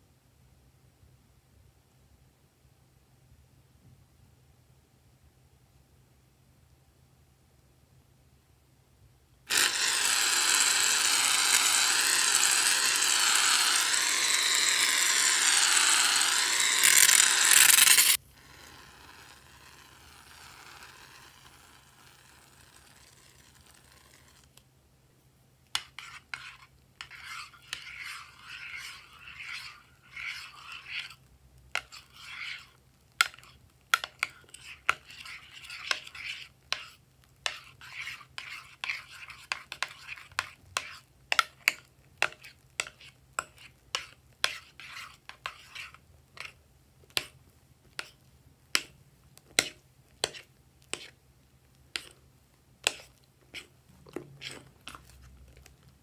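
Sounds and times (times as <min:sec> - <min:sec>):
spatula scraping glass dish: 0:09.5 - 0:21.5, 0:25.8 - 0:51.2, 0:51.9 - 0:52.2, 0:52.8 - 0:55.6.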